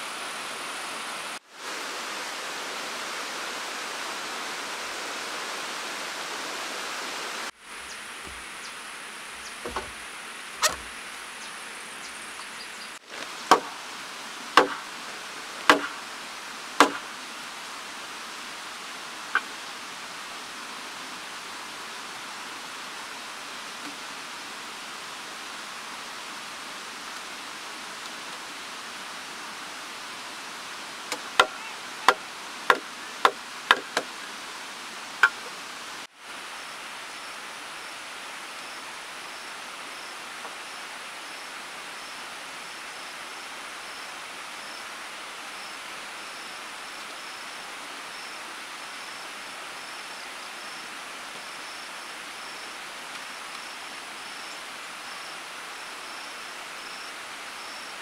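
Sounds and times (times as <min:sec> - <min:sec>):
steady outdoor hiss: 0:00.0 - 0:58.0
faint insect chirp: 0:07.6 - 0:14.3, 0:33.9 - 0:58.0
wooden planks knocking: 0:07.8 - 0:08.6, 0:09.4 - 0:10.0, 0:10.6 - 0:11.0, 0:13.2 - 0:13.8.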